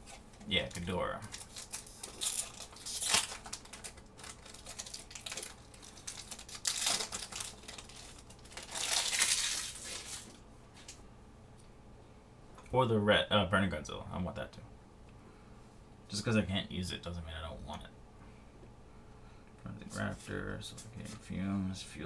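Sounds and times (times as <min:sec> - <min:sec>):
foil wrapper crinkling and tearing: 0:00.6 - 0:11.0.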